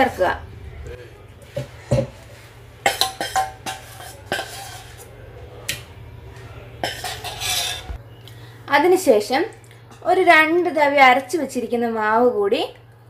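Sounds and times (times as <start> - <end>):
low steady hum: 0.0 - 13.0
utensil scraping a steel jar: 2.9 - 5.1, 6.8 - 8.0.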